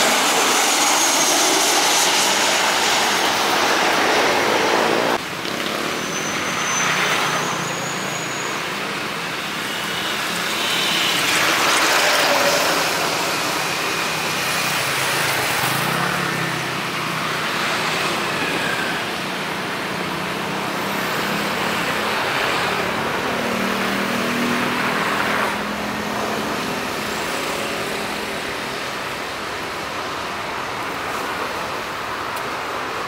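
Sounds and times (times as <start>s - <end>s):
jet engines roaring: 0.0s - 33.0s.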